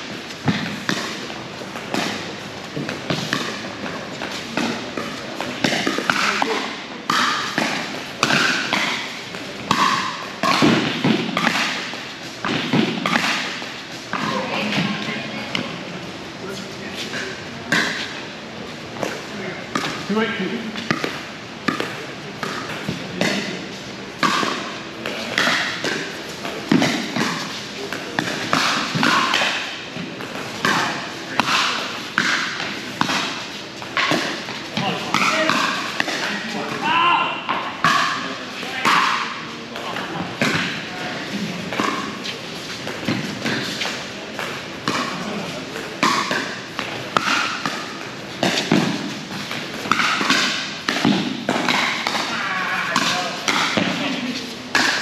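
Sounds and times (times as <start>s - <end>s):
paddles hitting plastic ball: 25.2s - 36.9s, 41.6s - 55.0s.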